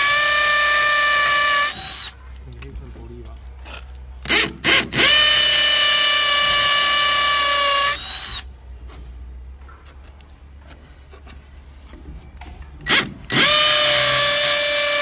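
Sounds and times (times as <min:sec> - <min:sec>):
hammer drill boring into brick: 0:12.9 - 0:15.0.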